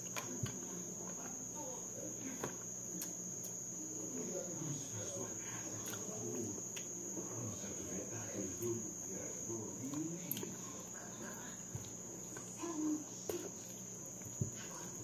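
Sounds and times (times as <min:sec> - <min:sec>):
cricket trilling: 0:00.0 - 0:15.0
soft chewing: 0:02.3 - 0:03.6, 0:05.3 - 0:07.5, 0:08.1 - 0:15.0.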